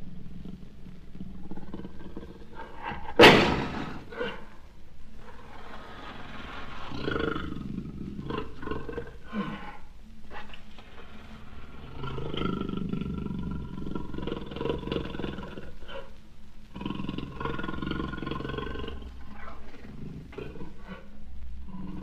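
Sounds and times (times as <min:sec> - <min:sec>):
jaguar grunting and rasping: 0:00.3 - 0:16.2.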